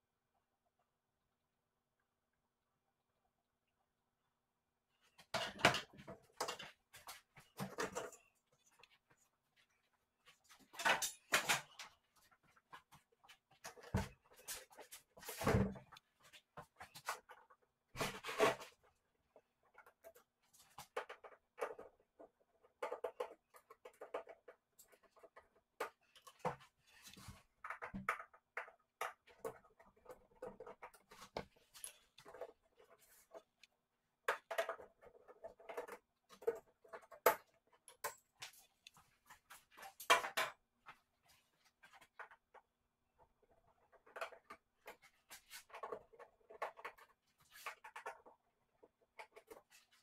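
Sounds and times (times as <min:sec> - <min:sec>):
scratching and rustling: 0:05.2 - 0:28.4, 0:34.4 - 0:50.0.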